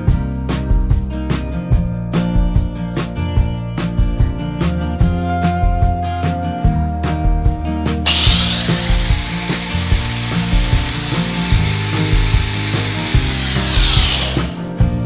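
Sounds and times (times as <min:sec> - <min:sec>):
background music: 0:00.0 - 0:15.0
mixer grinder blending: 0:08.1 - 0:14.6.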